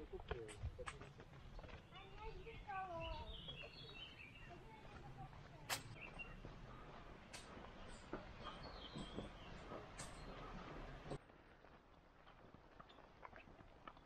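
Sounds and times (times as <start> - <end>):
footsteps on twigs and stones: 0.0 - 14.0
faint bird chirps: 5.9 - 6.4.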